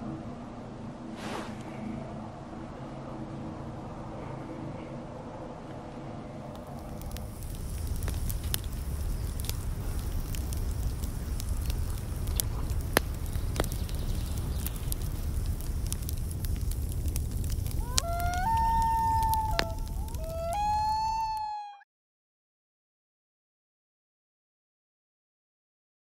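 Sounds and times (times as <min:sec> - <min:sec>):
wood fire rumbling: 0:00.3 - 0:21.6
fire crackling and popping: 0:06.4 - 0:21.6.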